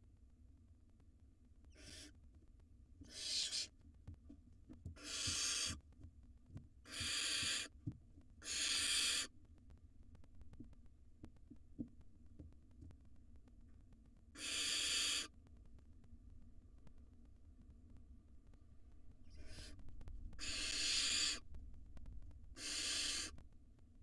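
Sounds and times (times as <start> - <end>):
owl nestlings hissing calls: 1.7 - 2.1, 3.0 - 3.7, 5.0 - 5.8, 6.8 - 7.8, 8.4 - 9.3, 14.4 - 15.3, 19.3 - 19.8, 20.4 - 21.4, 22.5 - 23.4.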